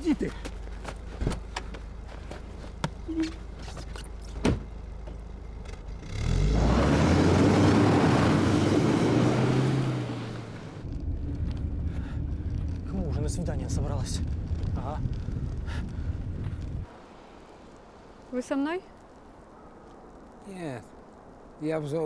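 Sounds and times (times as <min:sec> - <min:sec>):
tyres churning through snow: 0:00.0 - 0:18.5
car door shutting: 0:03.1 - 0:04.7
car engine revving: 0:05.5 - 0:14.6.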